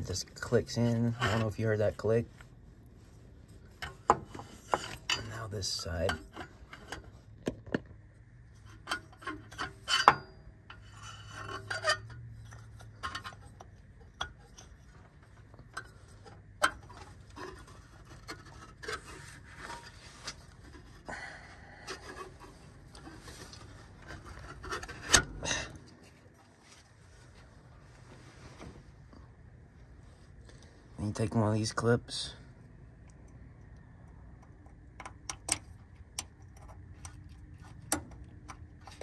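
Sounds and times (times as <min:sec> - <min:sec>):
clicks of plastic and metal parts: 0:33.1 - 0:39.0.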